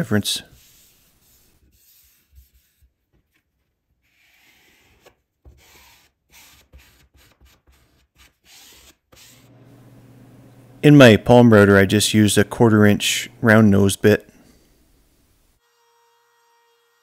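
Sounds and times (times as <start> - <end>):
foam brush rubbing on paper: 0.4 - 3.0
hands smoothing wet paper: 0.4 - 9.6.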